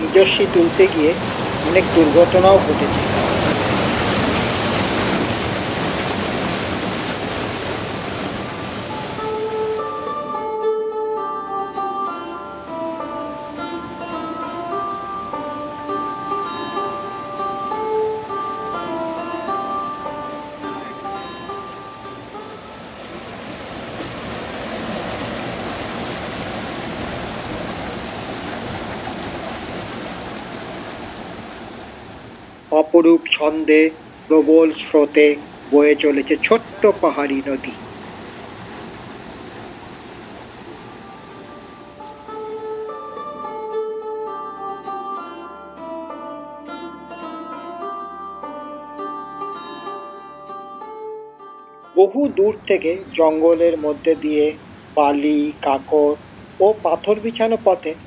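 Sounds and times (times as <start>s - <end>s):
plucked-string music: 0.0s - 7.2s, 8.2s - 30.0s, 40.6s - 58.0s
river water rushing: 0.0s - 51.0s, 51.9s - 58.0s.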